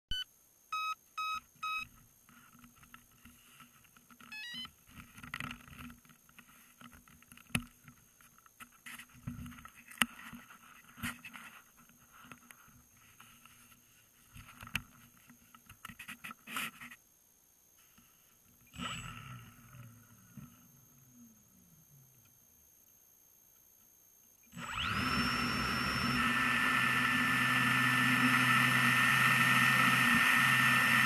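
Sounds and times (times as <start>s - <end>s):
short electronic beeps: 0.1s - 1.9s, 4.3s - 4.7s
clicks and knocks of handling: 4.9s - 12.6s.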